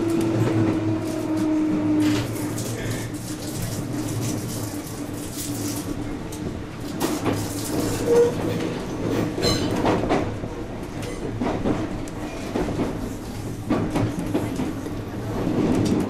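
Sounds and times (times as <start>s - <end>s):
train wheels clacking over rail joints: 6.8s - 14.9s.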